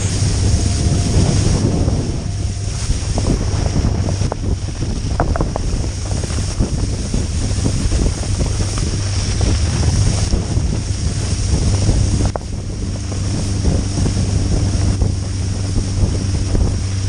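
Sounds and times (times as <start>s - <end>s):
boat engine drone: 0.0s - 17.0s
hiss of churning wake: 0.0s - 17.0s
wind buffeting microphone: 0.0s - 17.0s.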